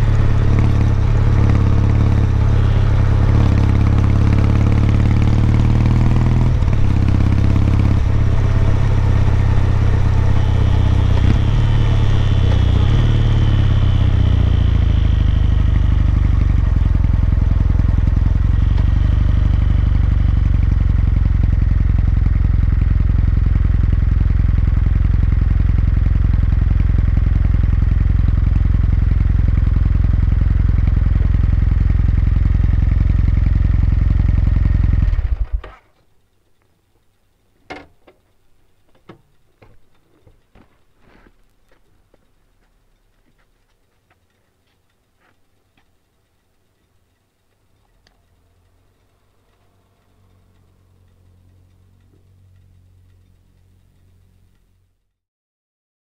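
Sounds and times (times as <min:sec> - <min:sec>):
motorcycle engine running: 0:00.0 - 0:35.8
faint clicks: 0:35.0 - 0:55.2.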